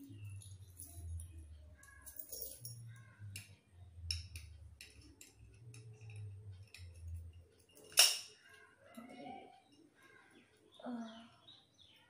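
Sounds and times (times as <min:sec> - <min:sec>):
metal padlocks clinking: 0:00.2 - 0:03.5, 0:04.1 - 0:08.6.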